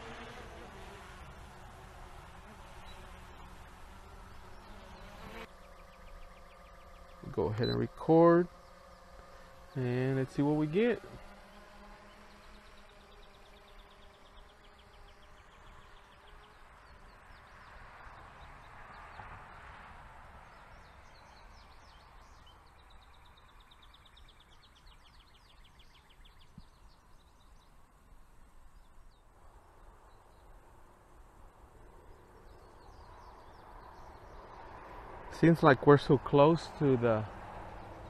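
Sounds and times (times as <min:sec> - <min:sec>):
faint steady hum: 0:00.0 - 0:18.6.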